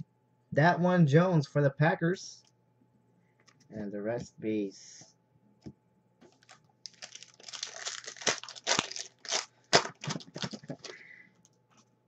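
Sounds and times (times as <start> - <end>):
foil wrapper crinkling and tearing: 6.4 - 11.0.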